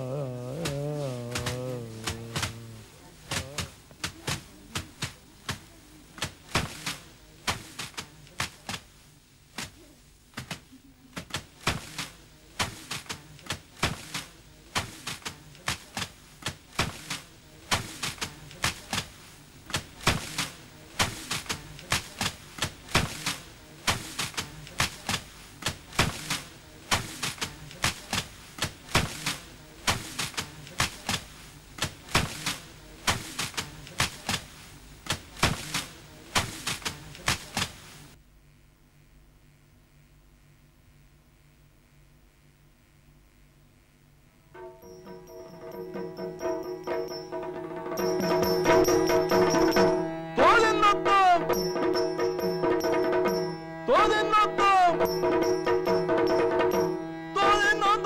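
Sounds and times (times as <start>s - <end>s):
faint steady drone: 38.2s - 58.0s
sharp percussion strokes: 44.6s - 58.0s.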